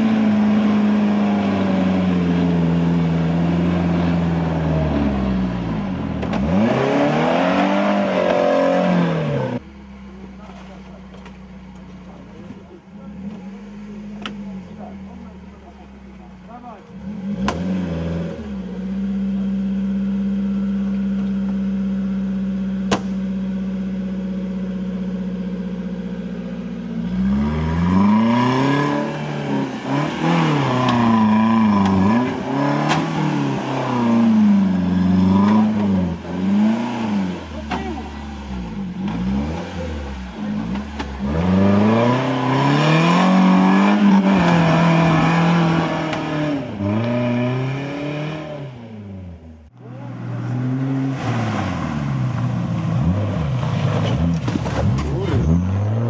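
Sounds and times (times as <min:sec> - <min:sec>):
engine idling and revving: 0:00.0 - 0:56.0.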